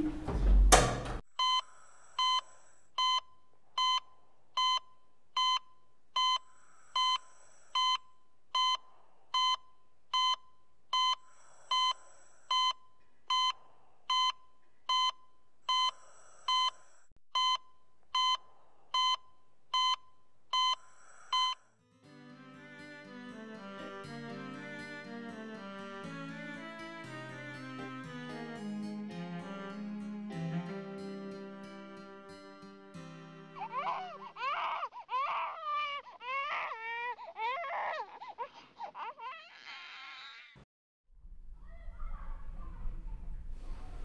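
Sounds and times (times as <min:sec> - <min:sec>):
patient monitor beeping: 0:01.4 - 0:07.2, 0:09.4 - 0:16.7, 0:17.4 - 0:21.6
string music: 0:21.9 - 0:34.3.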